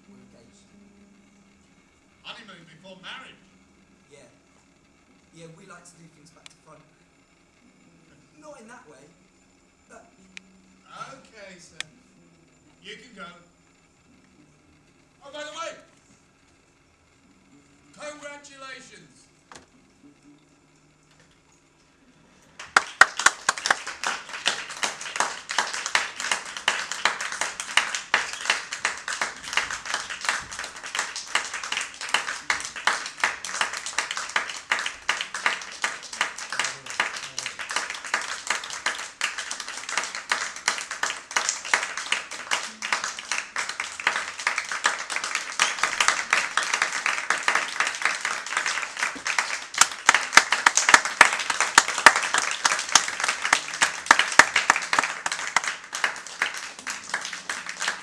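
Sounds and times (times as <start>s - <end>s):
audience applauding: 22.5s - 58.0s.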